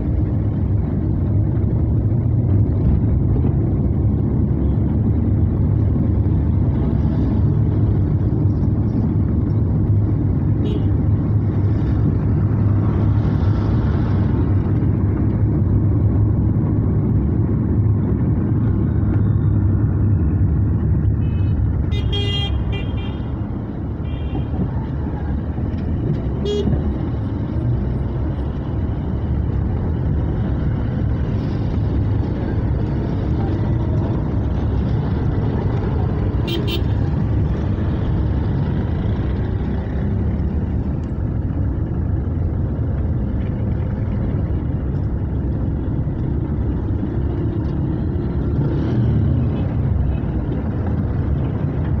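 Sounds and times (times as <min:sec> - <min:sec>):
vehicle horns honking: 0:21.2 - 0:23.2, 0:26.4 - 0:26.7, 0:36.4 - 0:36.9.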